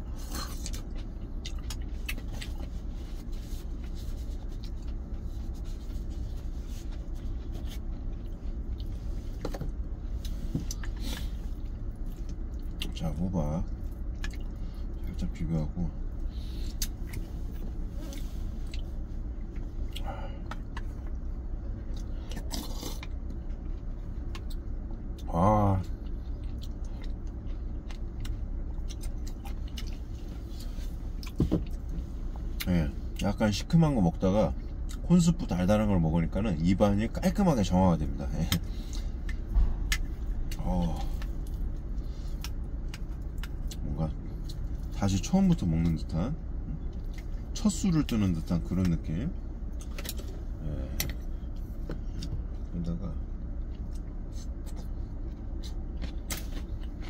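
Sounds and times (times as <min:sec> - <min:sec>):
chewing and swallowing: 0:00.0 - 0:15.3, 0:16.0 - 0:33.2, 0:38.5 - 0:45.0, 0:46.5 - 0:47.6, 0:53.3 - 0:57.0
steady low hum: 0:00.0 - 0:57.0.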